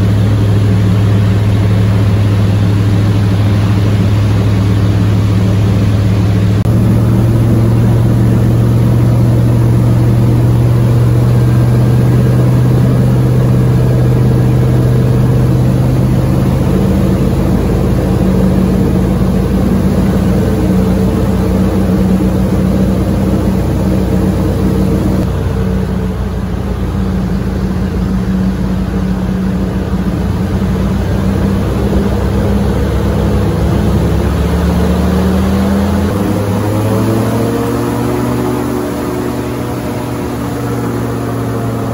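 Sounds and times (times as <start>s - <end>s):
airboat engine and propeller drone: 0.0s - 41.9s.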